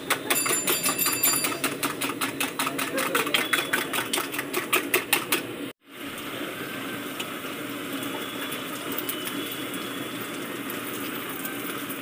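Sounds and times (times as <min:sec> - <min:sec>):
egg sizzling on griddle: 0:05.8 - 0:12.0.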